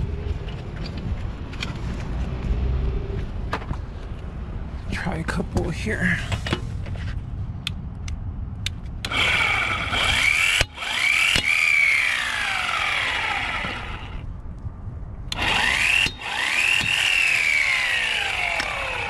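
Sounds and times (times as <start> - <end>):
electric impact wrench whine: 9.1 - 14.3, 15.3 - 19.0.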